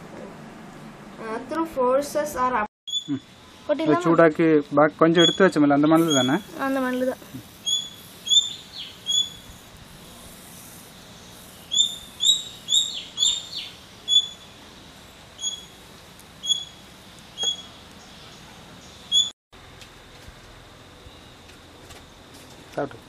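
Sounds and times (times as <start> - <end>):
small bird chirping: 2.9 - 3.4, 5.2 - 9.7, 11.0 - 14.6, 15.4 - 15.8, 16.4 - 19.3.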